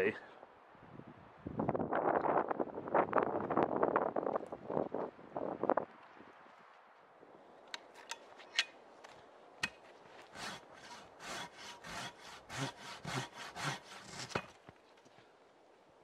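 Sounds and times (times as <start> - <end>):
handsaw cutting log: 10.3 - 14.5.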